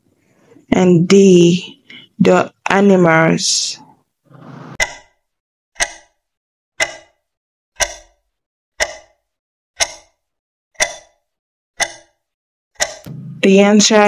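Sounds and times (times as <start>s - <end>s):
ringing clock ticks: 4.8s - 14.0s.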